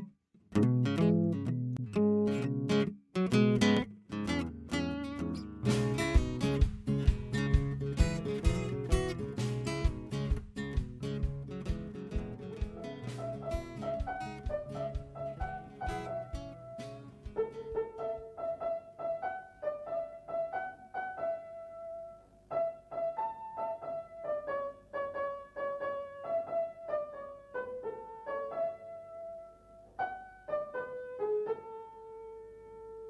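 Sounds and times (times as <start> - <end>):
piano-like keyboard melody: 12.0 - 33.0.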